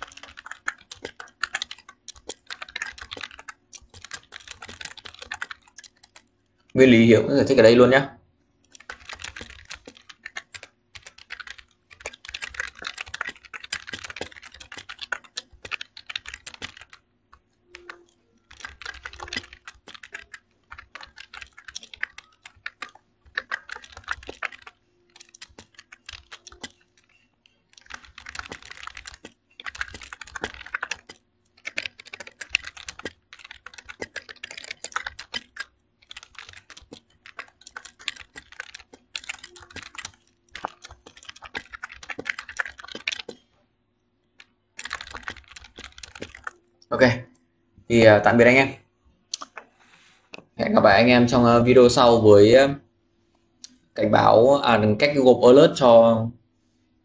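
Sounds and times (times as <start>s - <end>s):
typing on computer keyboard: 0.0s - 8.0s, 8.6s - 43.5s, 44.3s - 46.6s.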